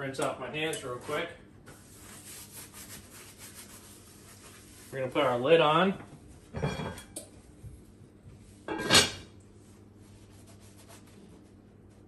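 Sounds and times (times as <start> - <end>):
lid scraping clatter on pot: 8.7 - 9.2.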